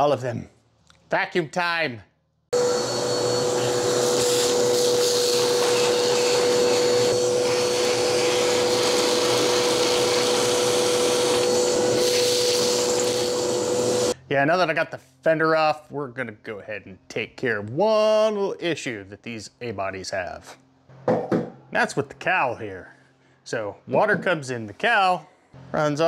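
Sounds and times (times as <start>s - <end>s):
shop vacuum running: 2.6s - 14.2s.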